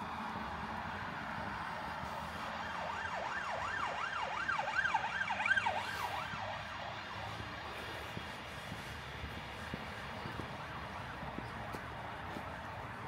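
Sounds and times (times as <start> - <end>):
emergency siren yelping: 0.0 - 7.9.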